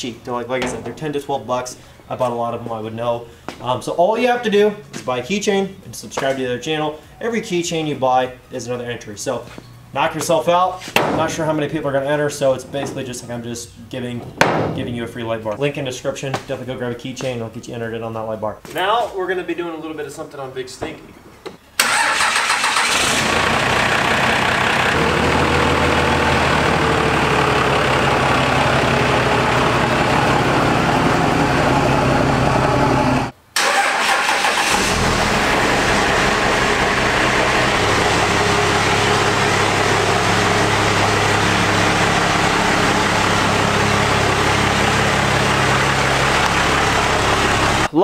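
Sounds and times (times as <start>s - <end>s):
diesel engine starting and idling: 21.8s - 47.9s.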